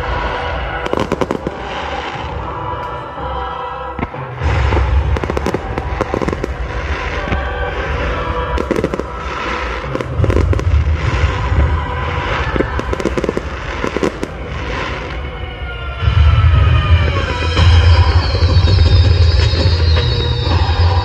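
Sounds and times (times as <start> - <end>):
deep rumble: 0.0 - 21.0
fireworks bursting with crackles: 0.0 - 21.0.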